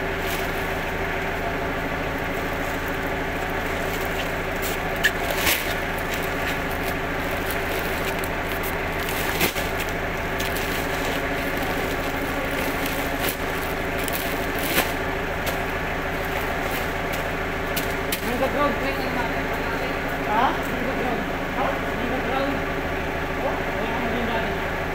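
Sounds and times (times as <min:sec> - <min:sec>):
steady mechanical hum: 0:00.0 - 0:24.9
sacks rustling and knocking: 0:02.4 - 0:18.3.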